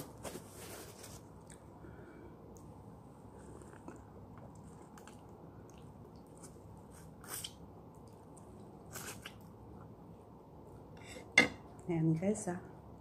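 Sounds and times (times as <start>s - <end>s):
low steady hum: 0.0s - 13.0s
person chewing and sucking lemon: 3.4s - 9.5s.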